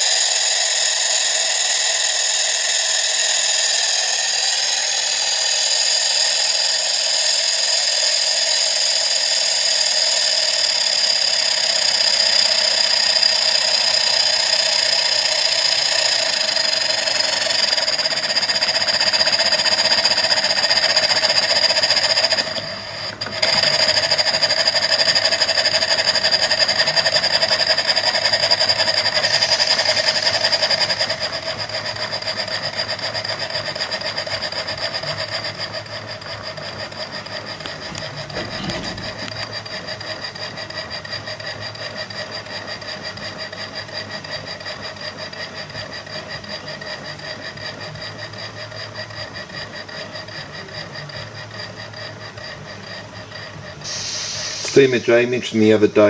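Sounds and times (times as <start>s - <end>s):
steam engine running: 0.0s - 56.0s
high-pitched whistle: 51.5s - 55.4s.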